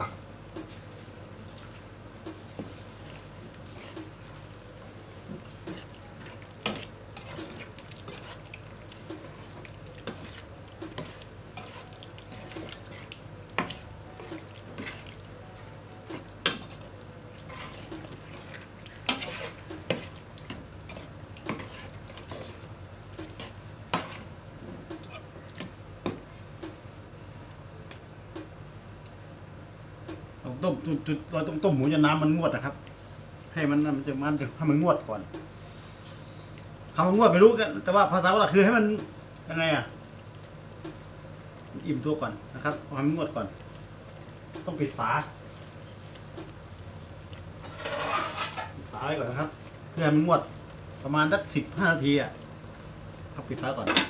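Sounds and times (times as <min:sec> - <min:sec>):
metal spoon scraping pot: 0:06.6 - 0:08.4, 0:17.5 - 0:20.1, 0:20.9 - 0:22.5, 0:47.6 - 0:48.8.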